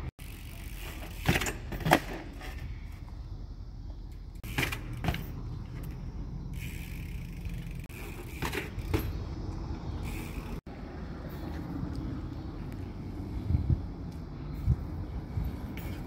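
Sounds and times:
bike clacking on concrete: 0:00.0 - 0:03.2, 0:03.9 - 0:10.6
bike rolling with high whir: 0:00.0 - 0:16.0.

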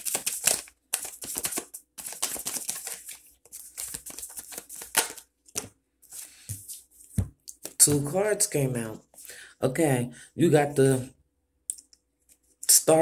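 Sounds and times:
cards being shuffled: 0:00.0 - 0:08.1.

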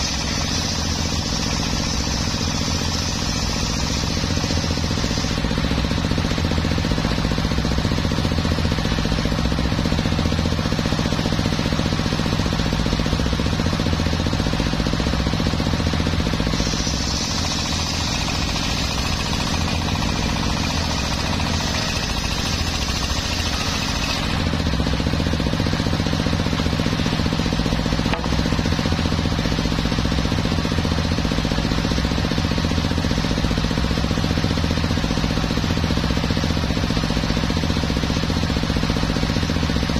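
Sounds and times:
saw blade cutting wood: 0:00.0 - 0:08.0, 0:15.6 - 0:29.9
circular saw humming: 0:00.0 - 0:10.1, 0:10.8 - 0:30.1.

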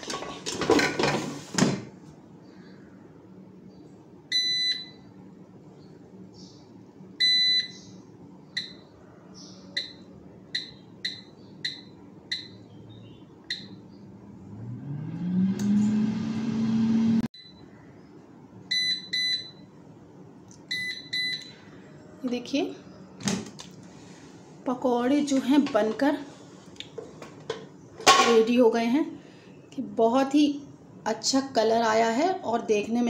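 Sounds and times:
control panel beeps: 0:08.6 - 0:08.8, 0:09.8 - 0:12.6, 0:13.4 - 0:13.8, 0:20.7 - 0:21.5
fan motor whirring: 0:13.4 - 0:17.3.

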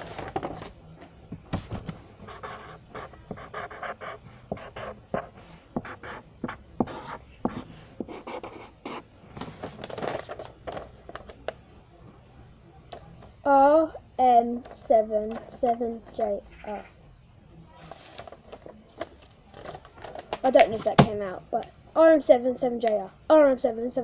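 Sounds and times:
pen scratching on paper: 0:02.3 - 0:09.0
paper rustling: 0:09.4 - 0:11.4, 0:17.8 - 0:20.9.

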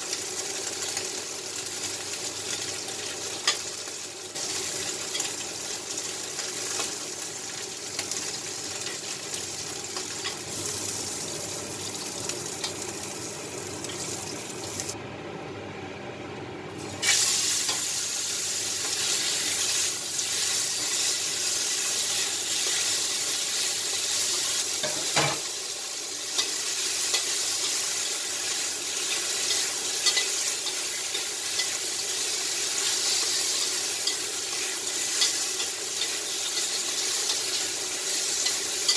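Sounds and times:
seafood sizzling in oil: 0:00.0 - 0:15.0, 0:17.0 - 0:38.9.

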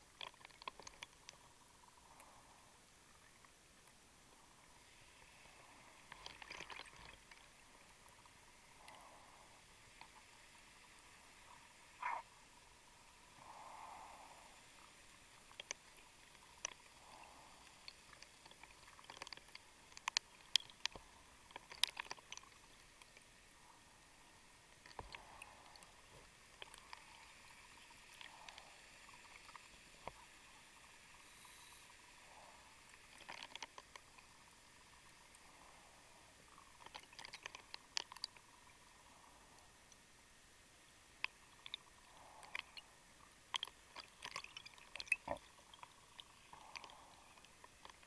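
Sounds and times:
low hiss: 0:00.0 - 0:48.0
muffled underwater clicks: 0:00.1 - 0:01.4, 0:12.0 - 0:12.3, 0:15.5 - 0:23.3, 0:36.6 - 0:38.5, 0:41.2 - 0:42.9, 0:43.5 - 0:48.0.

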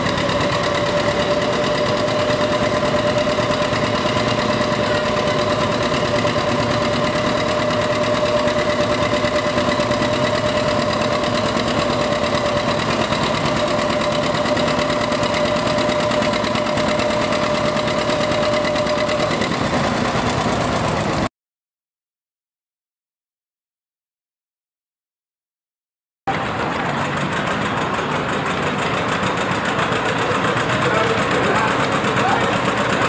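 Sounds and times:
steady whine: 0:00.0 - 0:21.3
tractor engine running: 0:00.0 - 0:21.3, 0:26.3 - 0:33.0.

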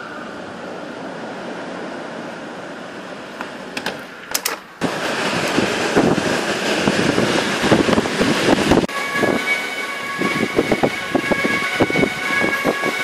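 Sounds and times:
wind buffeting microphone: 0:04.8 - 0:13.0
wind rushing through trees: 0:04.8 - 0:13.0.

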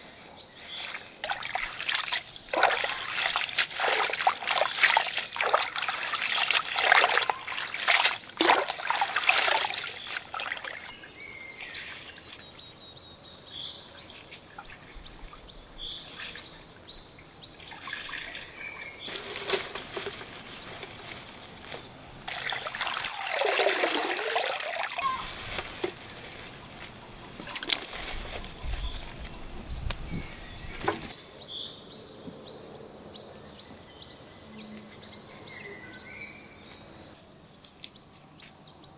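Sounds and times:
bird chirping: 0:00.0 - 0:26.9, 0:28.1 - 0:38.9
water splashing in a tub: 0:01.2 - 0:11.0, 0:17.7 - 0:20.2, 0:22.3 - 0:26.0
water trickling and dripping: 0:01.2 - 0:11.0, 0:22.3 - 0:25.9.

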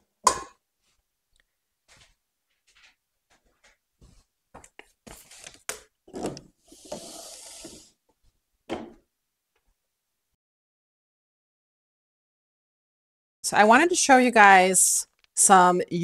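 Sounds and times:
metal tray scraping slide: 0:06.6 - 0:08.0.

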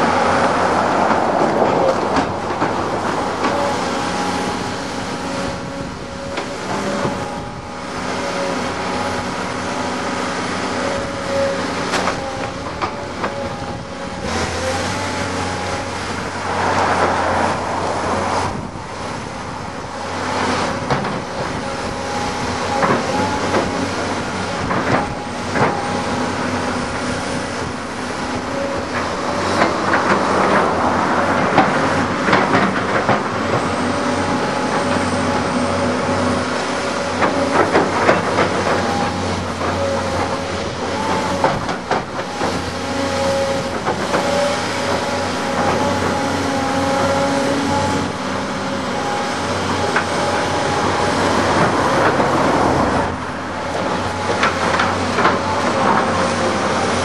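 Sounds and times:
excavator diesel engine: 0:00.0 - 0:57.0
metallic clanks of bucket and tracks: 0:20.4 - 0:57.0.

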